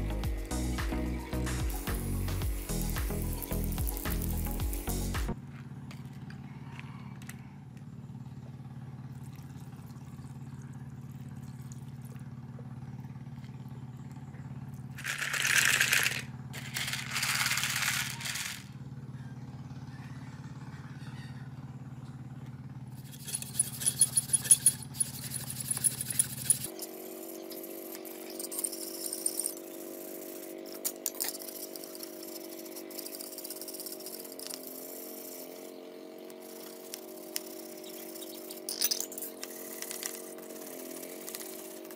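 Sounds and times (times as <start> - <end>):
steady hum: 0.0 - 5.4
metal parts clinking: 15.0 - 18.7, 23.0 - 26.9, 28.1 - 34.6, 36.5 - 40.3.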